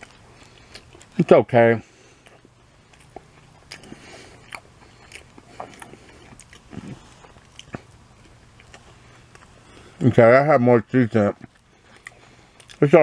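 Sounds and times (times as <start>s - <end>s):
person chewing crunchy food: 0.0s - 10.2s, 11.2s - 13.0s.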